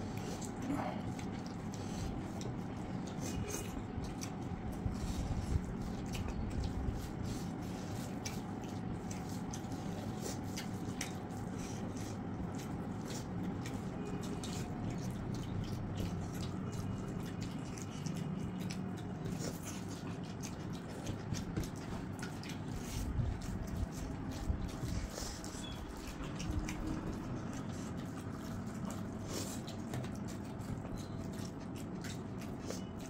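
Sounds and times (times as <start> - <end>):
eating sounds: 0.0 - 33.0
hands mixing wet food: 0.0 - 33.0
low background hum: 0.0 - 33.0.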